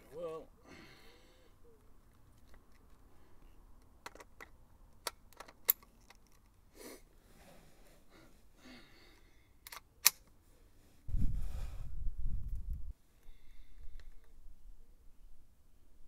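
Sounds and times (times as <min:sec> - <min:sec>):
airsoft rifle clicks and snaps: 0:09.6 - 0:10.4.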